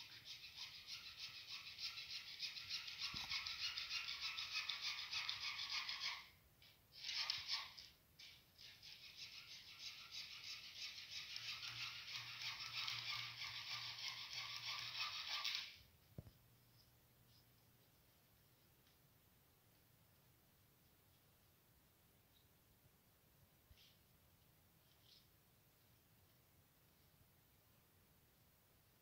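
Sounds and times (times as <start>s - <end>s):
hacksaw cutting plastic pipe: 0.0s - 6.3s, 8.7s - 15.8s.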